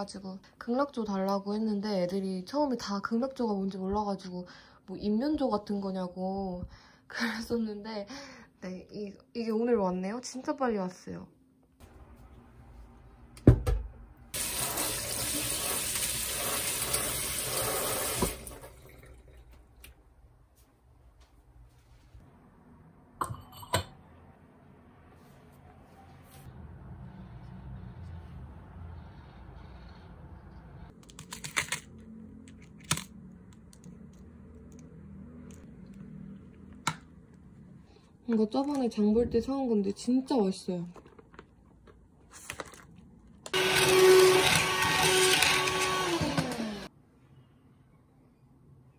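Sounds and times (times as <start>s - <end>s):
kitchen tap running: 14.3s - 20.0s.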